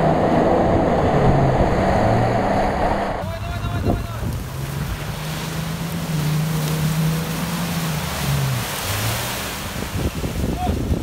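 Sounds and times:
wind buffeting microphone: 0.0 - 11.0
water splashing: 3.1 - 11.0.

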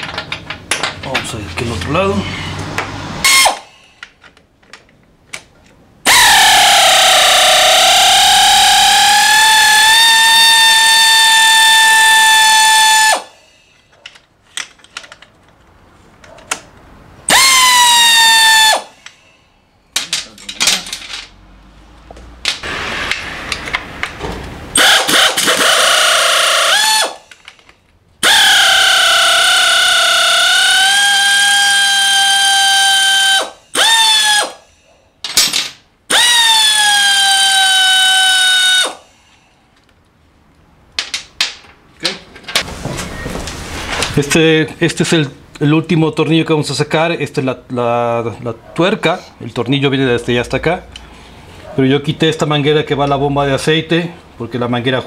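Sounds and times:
power tool motor whining: 24.8 - 27.3, 28.2 - 34.6, 36.1 - 39.0.

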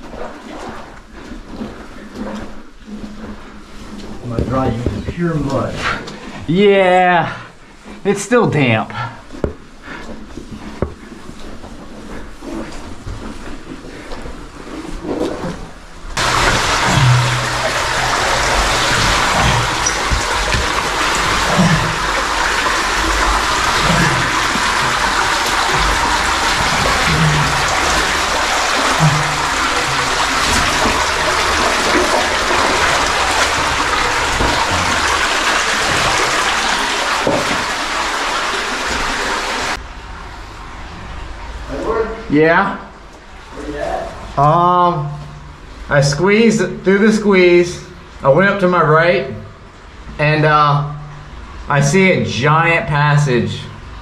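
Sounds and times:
stream splashing over rocks: 16.2 - 39.8.

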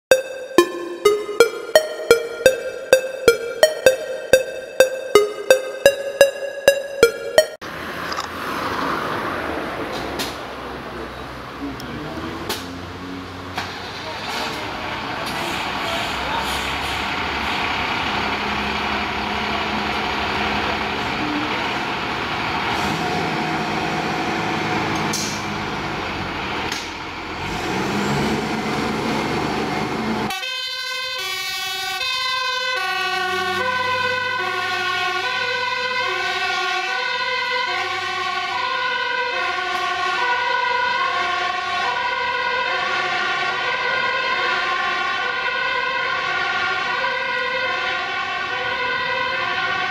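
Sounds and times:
two-tone siren: 0.0 - 7.6, 30.3 - 49.9.

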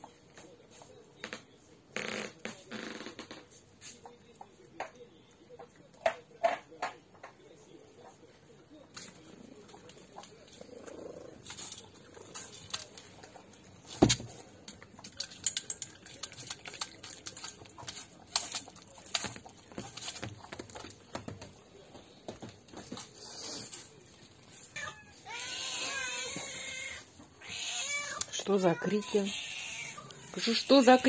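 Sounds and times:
teeth clicking on metal bowl: 14.6 - 20.8.

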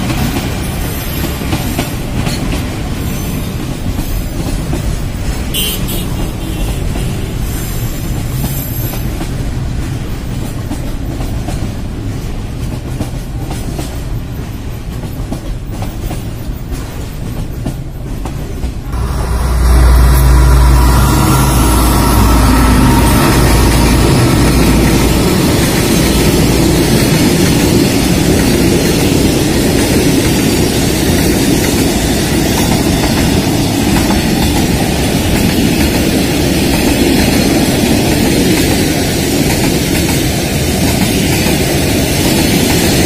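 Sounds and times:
freight train wagons rolling by: 0.0 - 43.0
diesel locomotive engine running: 18.7 - 38.5.

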